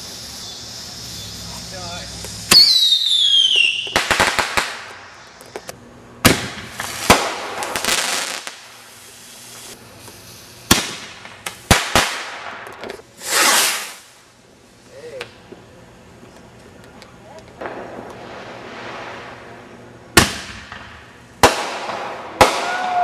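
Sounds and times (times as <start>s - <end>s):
rushing hiss: 0.0s - 5.4s, 6.7s - 14.3s
fireworks crackling: 0.0s - 23.0s
firework bangs and pops: 2.2s - 14.2s, 17.6s - 19.5s, 20.1s - 23.0s
firework launch whistle: 2.4s - 4.6s, 13.2s - 14.1s, 21.6s - 23.0s.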